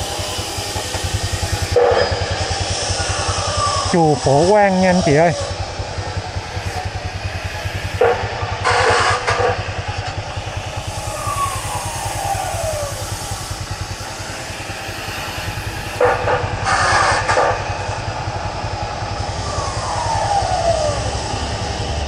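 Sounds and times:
small motorbike engine running: 0.0s - 22.0s
street traffic noise: 0.0s - 22.0s.

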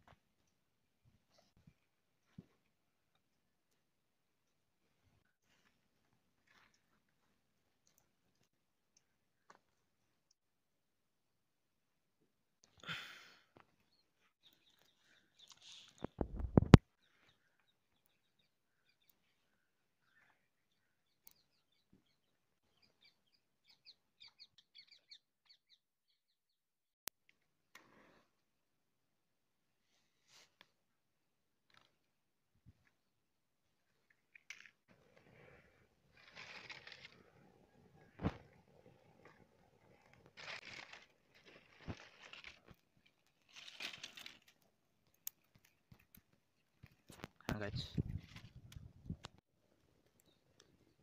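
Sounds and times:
faint bird chirping: 13.9s - 16.2s
dry twigs and leaves rustling: 35.5s - 37.2s, 40.0s - 49.2s.

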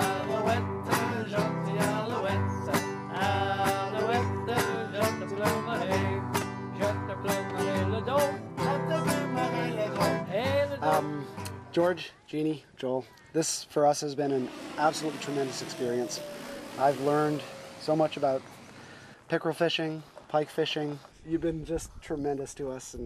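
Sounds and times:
acoustic guitars playing: 0.0s - 12.0s, 14.4s - 18.7s.

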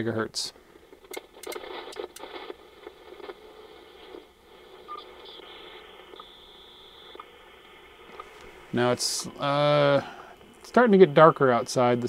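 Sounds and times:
radio band static: 1.0s - 12.0s
short clicks: 1.1s - 2.2s.

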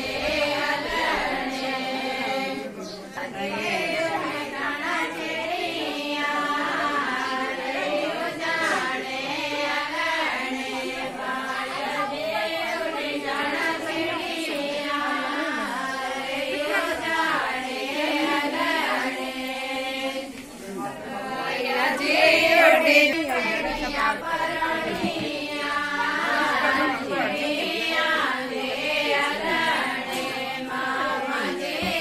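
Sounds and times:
women singing without instruments: 21.2s - 32.0s.

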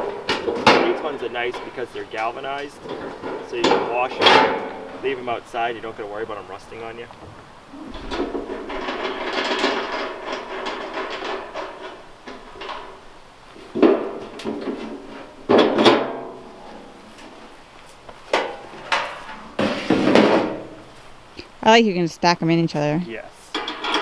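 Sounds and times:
metal cones clanking together: 0.0s - 17.5s, 18.2s - 21.0s, 22.7s - 24.0s
metal cones rattling and scraping: 0.0s - 21.2s, 21.8s - 24.0s.

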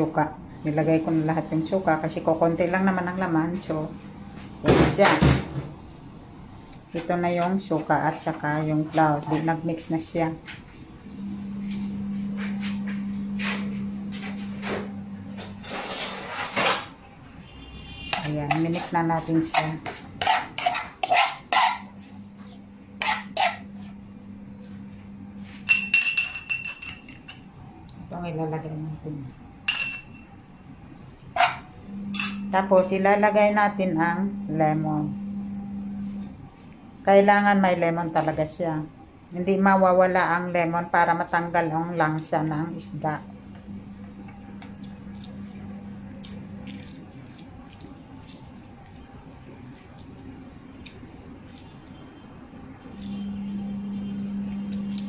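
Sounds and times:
low steady hum: 0.0s - 55.0s
spoon scraping a pan: 15.4s - 16.9s, 17.9s - 24.0s
spoon clinking against a pan: 25.7s - 27.4s, 29.7s - 30.3s
juice dripping: 43.6s - 55.0s
lemon squishing: 43.8s - 52.0s.

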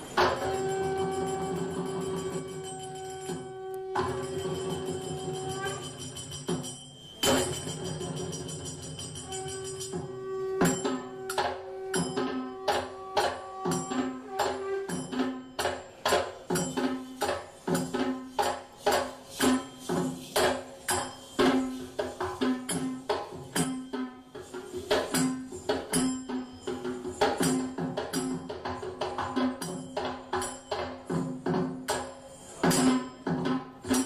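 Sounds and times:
percussive beat: 0.0s - 34.0s.

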